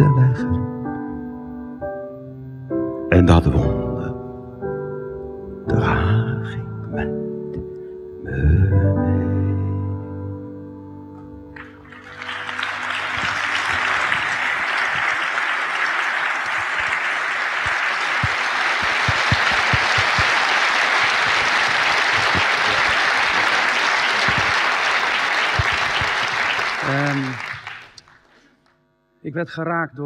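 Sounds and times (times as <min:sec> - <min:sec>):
backing music held chord: 0:00.0 - 0:16.9
audience applause: 0:11.6 - 0:28.3.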